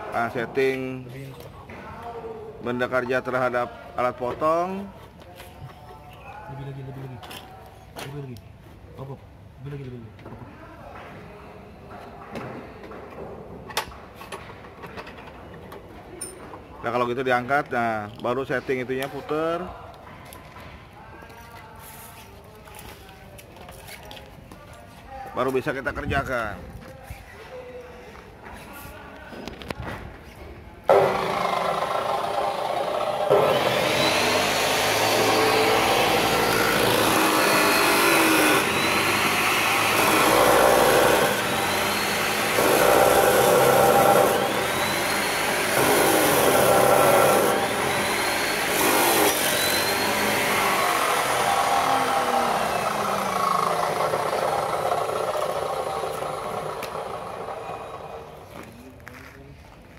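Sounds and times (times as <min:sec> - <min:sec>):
cut-off saw grinding metal: 0:30.9 - 0:58.4.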